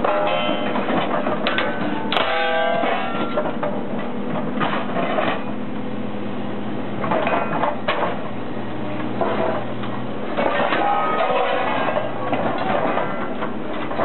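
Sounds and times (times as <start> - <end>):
struck rail pieces ringing: 0.0 - 3.8, 10.4 - 14.0
metallic clanking: 0.0 - 5.6, 9.2 - 14.0
excavator engine and hydraulics: 0.0 - 14.0.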